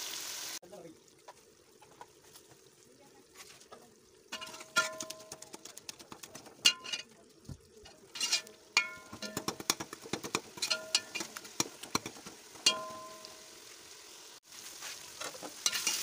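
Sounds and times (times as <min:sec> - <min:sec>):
metal spoon stirring in pot: 0:04.3 - 0:13.4, 0:15.2 - 0:16.0
spoon knocking ringing pot: 0:08.8 - 0:09.7, 0:10.6 - 0:11.3, 0:12.6 - 0:13.4.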